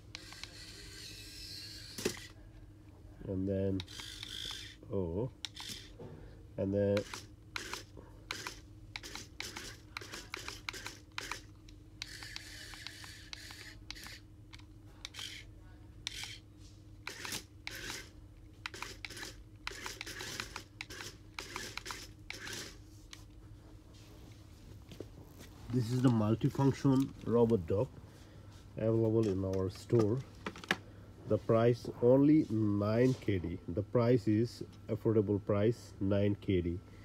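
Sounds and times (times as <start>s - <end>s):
toy motors clicking and rattling: 0.0s - 2.4s, 3.8s - 4.8s, 5.4s - 6.0s, 6.9s - 16.4s, 17.0s - 23.2s.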